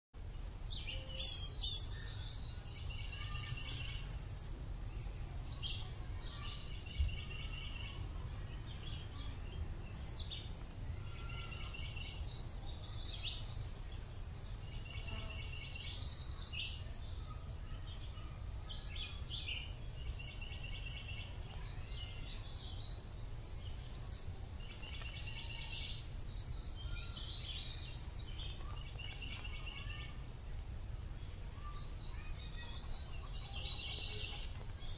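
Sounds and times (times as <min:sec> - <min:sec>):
birds chirping trills: 0:00.2 - 0:34.9
loud high bird call: 0:10.9 - 0:12.0.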